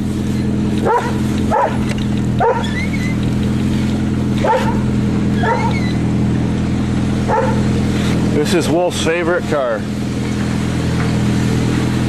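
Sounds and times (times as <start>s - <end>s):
engine idling: 0.0s - 12.0s
dog barking in short yips: 2.4s - 2.8s, 4.4s - 4.8s, 5.4s - 5.8s.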